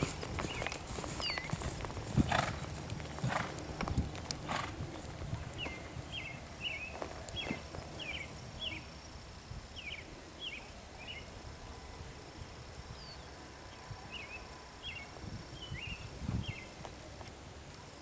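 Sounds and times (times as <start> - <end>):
hooves thudding in sand: 0.0 - 8.3
bird chirping: 0.0 - 9.0, 9.7 - 11.3
low outdoor rumble: 0.0 - 12.6.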